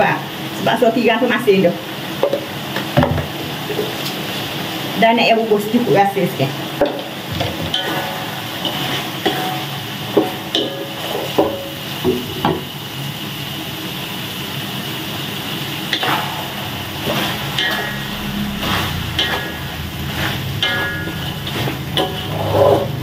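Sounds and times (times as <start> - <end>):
food sizzling: 0.0 - 23.0
spatula clacking on pan: 6.8 - 12.7
spatula scraping metal wok: 15.9 - 23.0.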